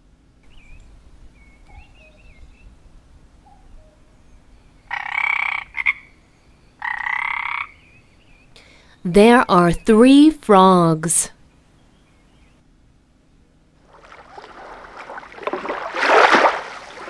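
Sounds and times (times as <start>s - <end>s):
frog croaking: 4.9s - 6.1s, 6.8s - 7.8s.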